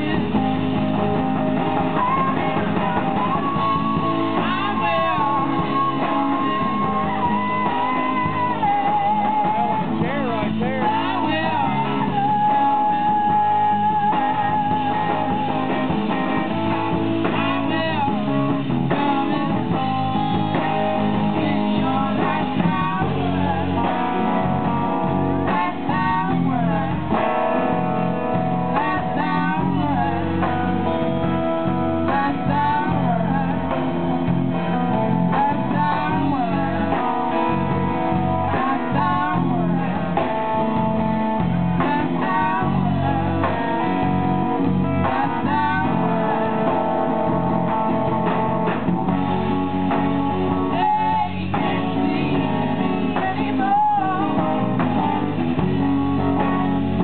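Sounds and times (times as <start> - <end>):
woman singing into a microphone: 0.0 - 16.5, 17.2 - 47.1, 49.9 - 55.2, 56.2 - 57.0
live blues band playing: 0.0 - 57.0.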